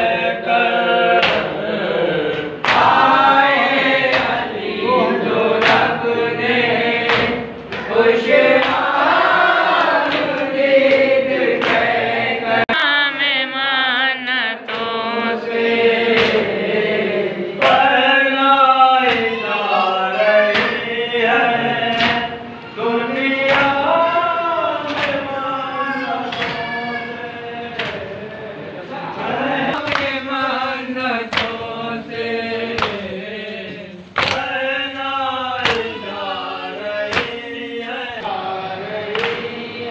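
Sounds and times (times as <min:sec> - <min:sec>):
men chanting in unison: 0:00.0 - 0:39.9
sharp slaps: 0:01.2 - 0:04.5, 0:05.6 - 0:05.9, 0:07.0 - 0:12.0, 0:16.1 - 0:17.0, 0:17.6 - 0:18.0, 0:19.0 - 0:19.4, 0:20.4 - 0:20.9, 0:21.8 - 0:22.4, 0:23.2 - 0:23.8, 0:24.8 - 0:25.3, 0:26.3 - 0:26.7, 0:27.7 - 0:28.2, 0:29.7 - 0:30.2, 0:31.2 - 0:31.8, 0:32.7 - 0:33.2, 0:34.2 - 0:35.9, 0:37.0 - 0:37.5, 0:39.1 - 0:39.6.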